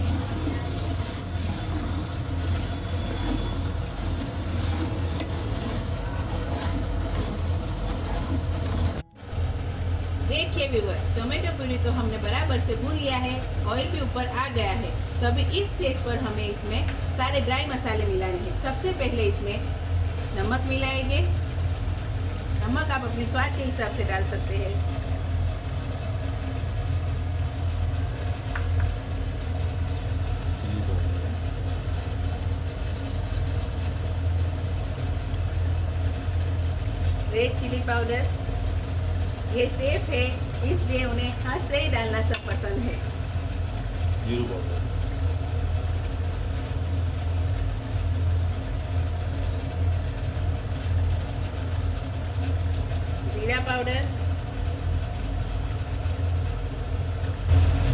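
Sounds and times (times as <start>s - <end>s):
low machine hum: 0.0s - 57.9s
pot bubbling in oil: 0.0s - 57.9s.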